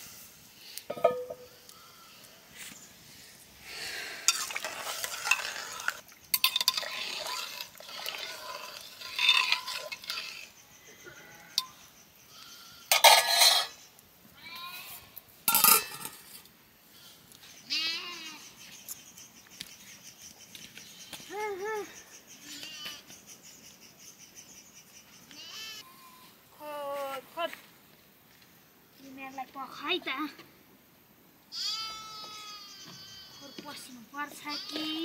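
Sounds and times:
clinks of pots and dishes: 0:00.9 - 0:01.5, 0:04.3 - 0:05.5, 0:06.4 - 0:10.1, 0:12.9 - 0:13.8, 0:15.5 - 0:16.3
metal utensil scraping a pot: 0:04.3 - 0:10.6, 0:12.9 - 0:13.8, 0:15.5 - 0:16.4
sheep bleating: 0:31.5 - 0:33.6.

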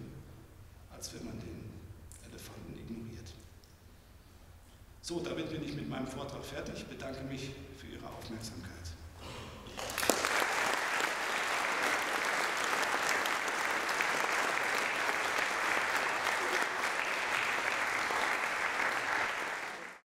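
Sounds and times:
audience applauding: 0:09.8 - 0:20.0.

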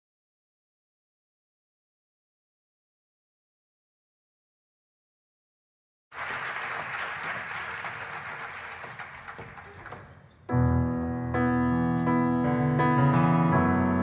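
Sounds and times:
audience applause: 0:06.1 - 0:10.2
grand piano chords: 0:10.4 - 0:14.0.

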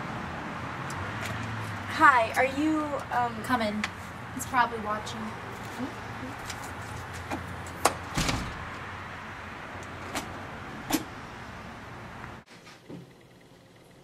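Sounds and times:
glass door thump: 0:08.1 - 0:08.7.

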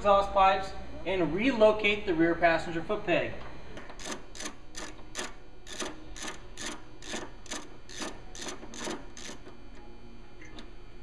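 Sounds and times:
ratchet wrench clicking: 0:04.0 - 0:09.4.

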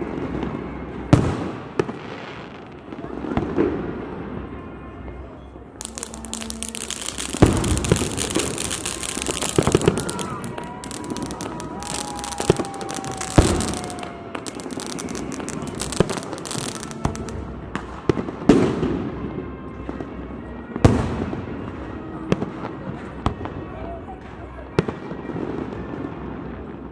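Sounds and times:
firework shells bursting: 0:05.8 - 0:17.4
firework crackling: 0:05.8 - 0:17.6.

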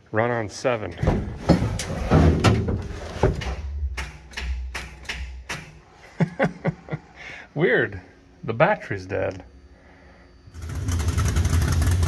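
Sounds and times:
knocks and handling noise: 0:00.9 - 0:05.9.

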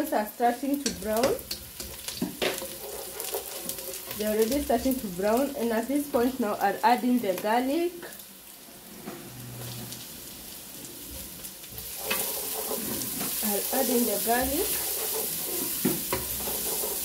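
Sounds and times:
onions sizzling in hot oil: 0:00.0 - 0:17.0
wooden spoon stirring: 0:00.8 - 0:06.4, 0:11.1 - 0:17.0.

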